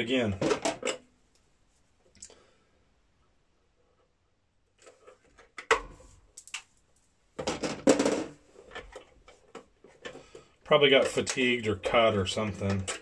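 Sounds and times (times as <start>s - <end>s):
tools clicking and knocking: 12.6s - 13.0s.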